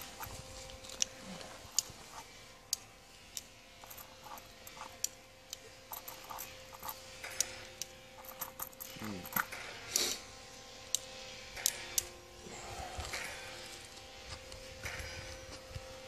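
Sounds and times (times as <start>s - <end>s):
revolver metallic clicks: 10.8s - 12.1s.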